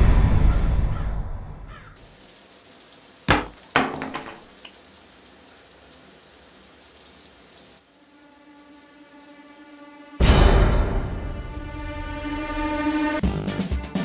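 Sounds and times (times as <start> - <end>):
shower spraying on tiled floor: 2.0 - 13.2
sharp knocks: 3.3 - 4.5.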